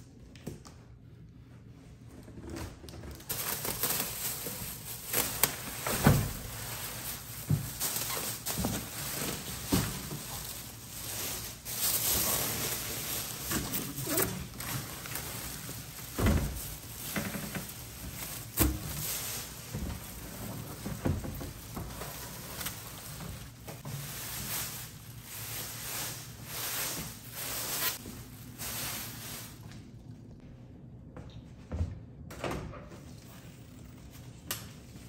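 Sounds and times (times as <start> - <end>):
plastic wrapping crinkling: 3.0 - 30.3.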